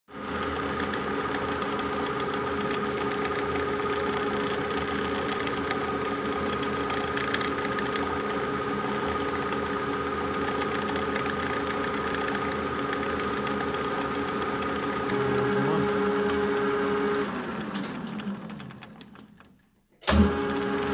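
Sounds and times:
metal lathe humming: 0.2s - 19.5s
knurling tool scraping and ticking: 0.8s - 8.2s, 10.3s - 15.2s.

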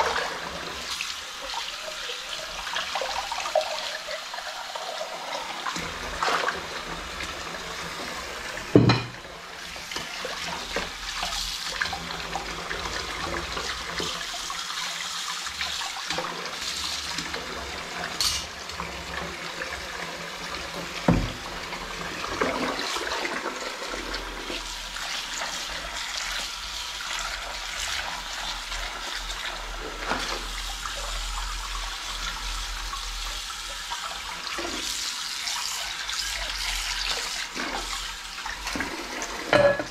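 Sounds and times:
tap running into sink: 5.7s - 9.2s, 20.7s - 21.5s
crockery knocks: 8.8s - 9.2s
dishes being scrubbed: 18.0s - 18.6s, 36.0s - 39.9s.

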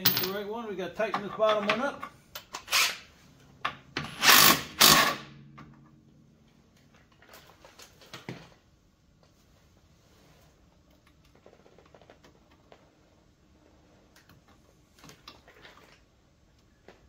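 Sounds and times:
impact wrench bursts: 4.0s - 5.3s.

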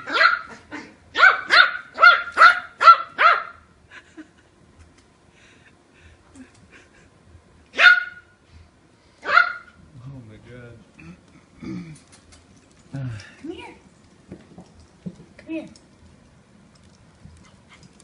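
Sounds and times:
small dog barking high-pitched: 0.0s - 3.6s, 7.8s - 8.3s, 9.2s - 9.8s.

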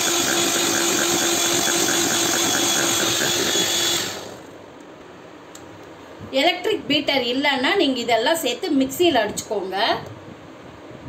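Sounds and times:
electric hand mixer whirring: 0.0s - 4.5s.

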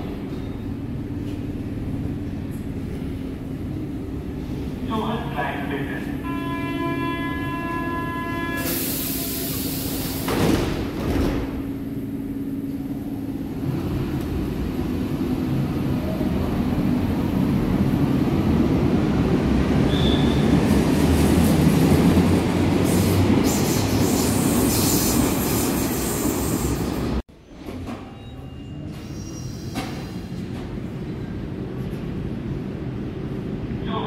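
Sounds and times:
train rolling rumble: 0.0s - 34.0s
train high squeal: 6.3s - 10.2s, 19.8s - 20.6s, 23.0s - 26.9s, 28.1s - 30.2s.

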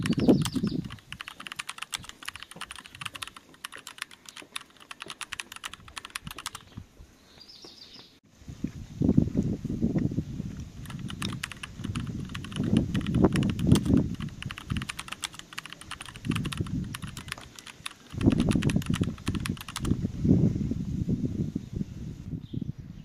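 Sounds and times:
keyboard key clicks: 0.0s - 6.7s, 10.8s - 20.0s.

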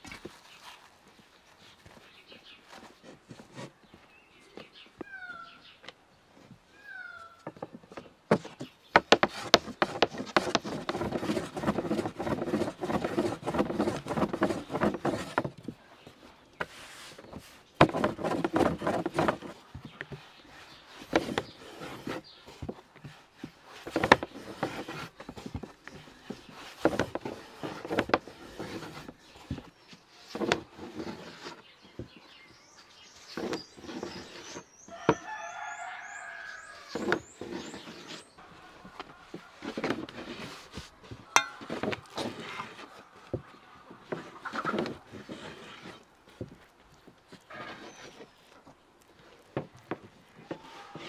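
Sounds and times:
rolling pin rolling dough: 8.3s - 15.7s, 16.6s - 32.1s, 38.9s - 48.6s.

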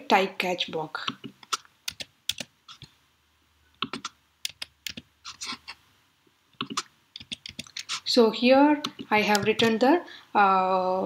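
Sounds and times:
typing on computer keyboard: 1.1s - 2.9s, 3.8s - 5.4s, 6.6s - 8.0s.

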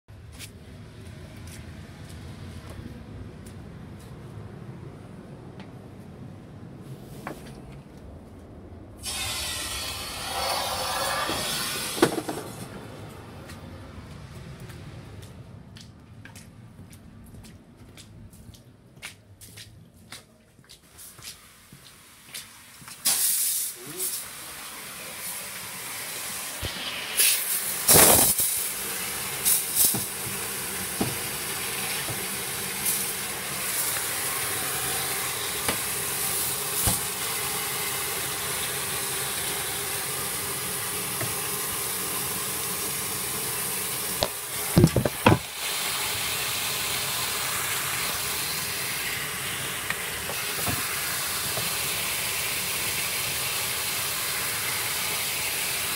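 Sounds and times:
water hissing from burst pipe: 23.0s - 44.8s, 45.4s - 55.9s
handling knocks and bumps: 44.2s - 45.4s.

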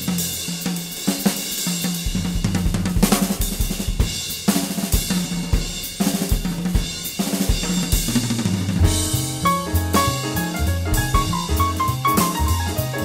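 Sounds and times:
drum kit beat: 0.0s - 13.0s
bass line: 8.8s - 13.0s.

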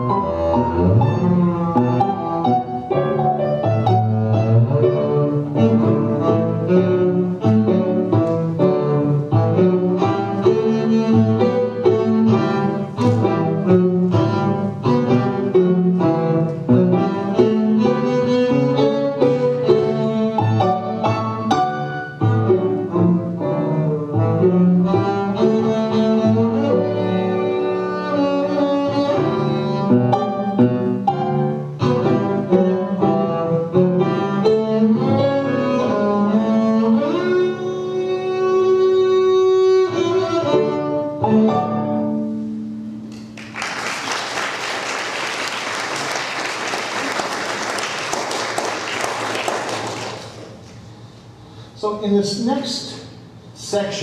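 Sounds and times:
bowed double bass: 0.0s - 43.0s
piano accompaniment: 0.0s - 51.1s
audience applause: 43.3s - 50.5s.

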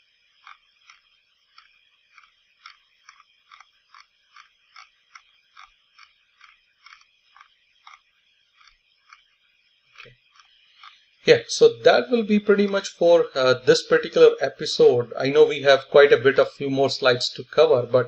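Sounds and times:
mouse scroll wheel clicks: 0.4s - 8.0s, 8.6s - 9.3s.

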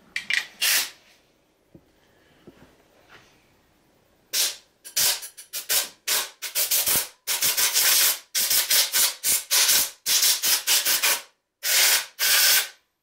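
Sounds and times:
air blowgun bursts: 0.6s - 1.0s, 4.4s - 12.8s.

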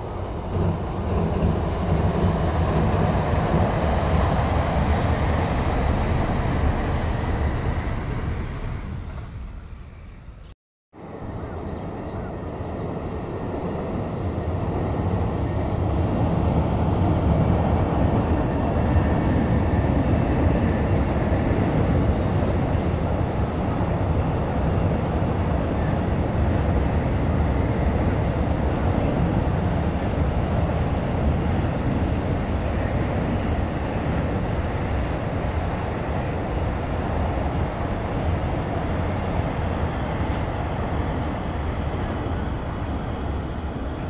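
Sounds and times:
freight train rolling over bridge: 0.0s - 44.0s.

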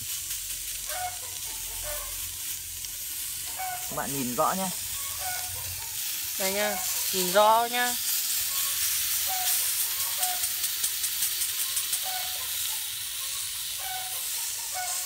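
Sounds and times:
meat sizzling on hot plate: 0.0s - 15.0s
crackling pops: 5.4s - 12.8s.

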